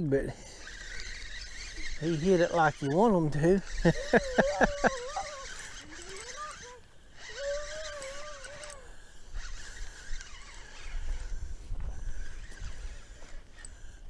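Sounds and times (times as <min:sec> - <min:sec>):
fishing reel cranking: 0:00.2 - 0:14.0
wind rumble on microphone: 0:09.4 - 0:13.4.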